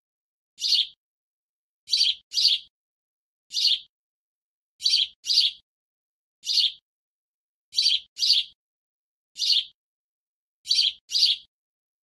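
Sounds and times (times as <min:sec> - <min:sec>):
short high bird chirps: 0:00.6 - 0:01.0, 0:01.9 - 0:02.7, 0:04.8 - 0:05.6, 0:06.4 - 0:06.8, 0:07.8 - 0:08.6.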